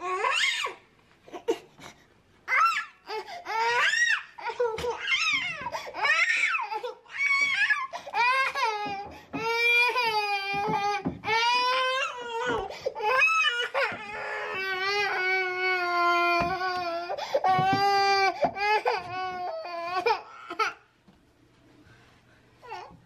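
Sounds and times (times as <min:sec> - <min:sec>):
toddler crying: 0:02.5 - 0:20.9.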